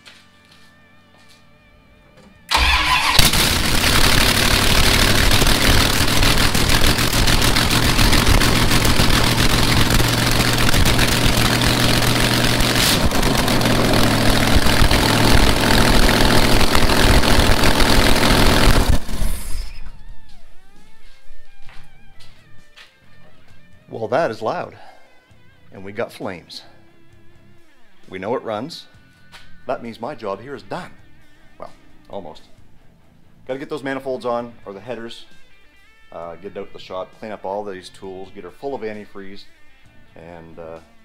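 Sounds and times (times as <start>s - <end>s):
loud car engine revving: 2.5s - 19.5s.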